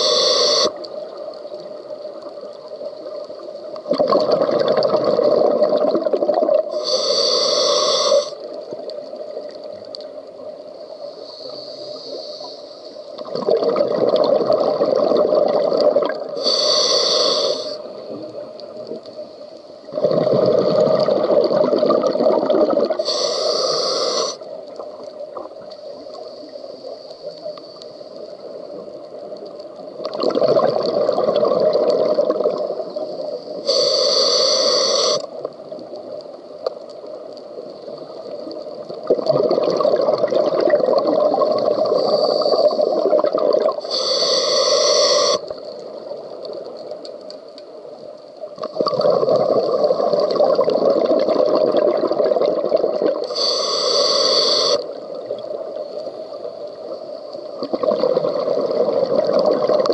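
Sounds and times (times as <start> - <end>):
regulator inhale hiss: 0.0 - 2.0, 6.7 - 9.7, 10.7 - 13.2, 16.3 - 18.4, 23.0 - 25.0, 25.6 - 29.1, 32.7 - 36.7, 41.8 - 46.3, 53.2 - 57.7
exhaled bubbles rumbling underwater: 0.8 - 7.1, 13.0 - 16.6, 17.2 - 27.4, 28.1 - 33.7, 35.3 - 44.0, 45.4 - 53.4, 54.8 - 59.9.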